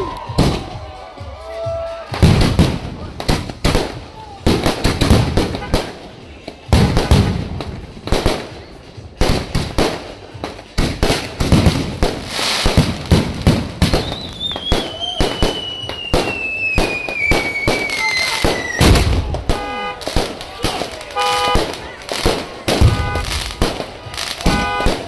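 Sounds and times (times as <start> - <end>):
fireworks bangs and crackling: 0.0 - 25.0
falling firework whistle: 13.9 - 19.0.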